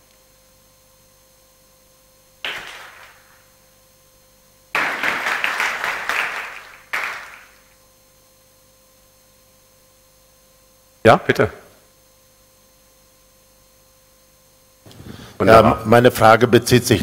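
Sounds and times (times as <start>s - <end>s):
audience applause: 2.5s - 3.4s, 4.8s - 7.7s.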